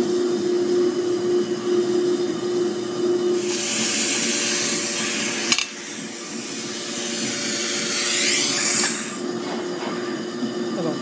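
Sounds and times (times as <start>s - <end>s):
motor hum: 0.0s - 11.0s
suction aspirator hissing: 3.4s - 9.3s.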